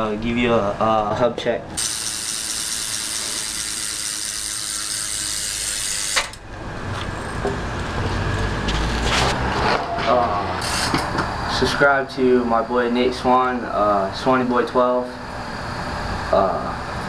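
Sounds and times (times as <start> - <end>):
bike hub freewheeling clicks: 1.8 - 6.4
low rumbling noise: 6.4 - 17.0.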